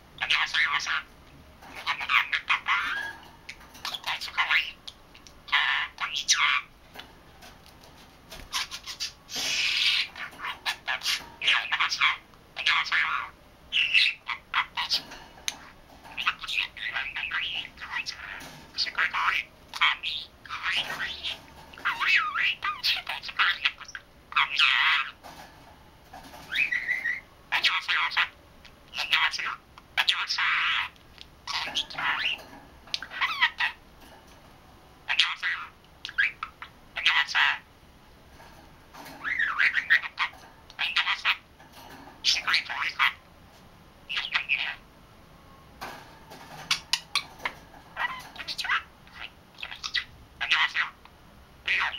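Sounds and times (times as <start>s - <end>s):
budgerigar chirping: 1.7s - 4.8s, 8.5s - 25.2s, 26.3s - 28.3s, 28.9s - 33.8s, 35.1s - 37.6s, 39.2s - 41.4s, 42.2s - 43.2s, 44.1s - 44.8s, 46.6s - 51.0s, 51.7s - 51.9s.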